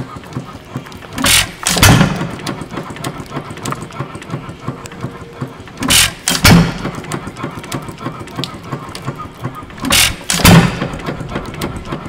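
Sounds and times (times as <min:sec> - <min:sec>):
hit-and-miss engine firing: 0:00.0 - 0:12.0.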